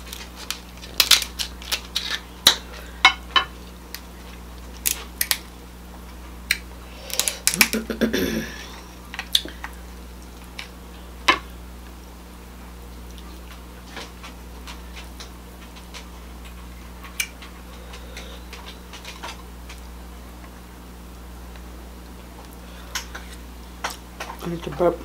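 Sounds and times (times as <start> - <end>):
crab shell clicking and cracking: 0.0 - 2.6, 4.7 - 5.5, 6.4 - 7.9, 14.7 - 19.8
steady low hum: 0.0 - 25.0.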